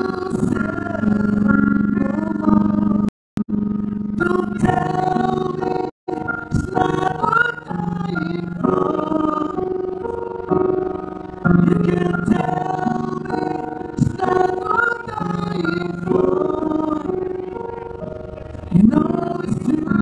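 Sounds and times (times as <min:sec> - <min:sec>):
man singing into microphone: 0:00.0 - 0:03.1, 0:04.2 - 0:09.8, 0:11.5 - 0:17.3, 0:18.7 - 0:20.0.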